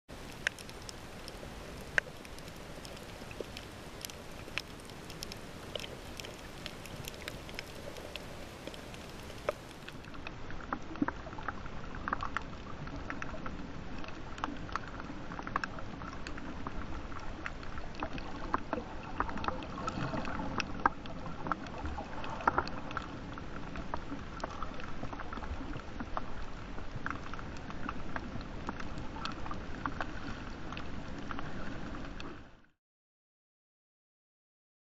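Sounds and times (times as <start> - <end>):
underwater clicks and crackles: 0.1 - 32.7.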